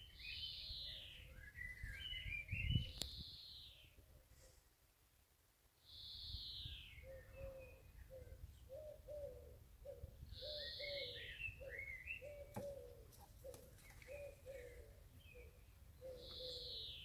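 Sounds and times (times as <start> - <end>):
bird chirps: 5.8 - 17.0.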